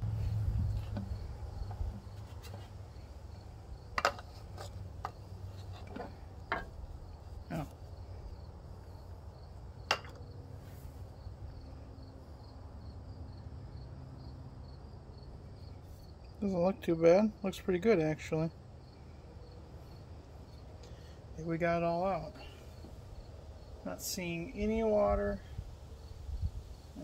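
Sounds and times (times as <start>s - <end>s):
insects chirping: 0.0s - 16.5s, 18.4s - 21.3s, 22.4s - 23.8s, 25.5s - 27.0s
low steady hum: 0.0s - 27.0s
glass bottle knocks: 6.5s - 6.7s, 9.9s - 10.2s.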